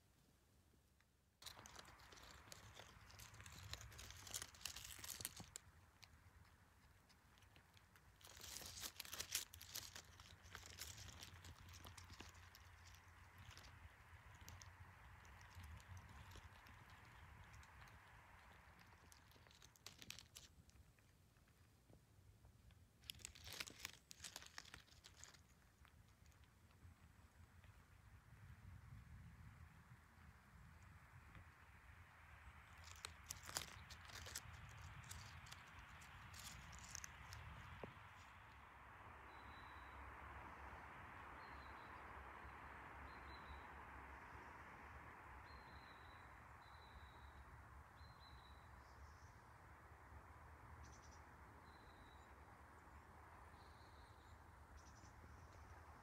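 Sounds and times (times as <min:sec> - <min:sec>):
dry leaves crackling and rustling: 0:01.4 - 0:21.5, 0:23.0 - 0:26.8, 0:32.5 - 0:38.6
steady forest hiss: 0:22.9 - 0:56.0.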